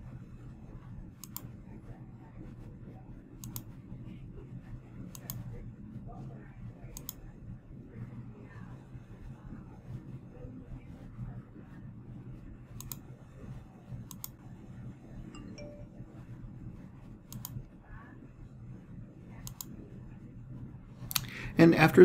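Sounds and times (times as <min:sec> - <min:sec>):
low room hum: 0:00.0 - 0:22.0
computer mouse clicks: 0:01.2 - 0:01.5, 0:03.4 - 0:03.7, 0:05.1 - 0:05.5, 0:06.9 - 0:07.2, 0:12.8 - 0:13.0, 0:14.0 - 0:14.4, 0:17.3 - 0:17.7, 0:19.4 - 0:19.8, 0:21.0 - 0:21.4.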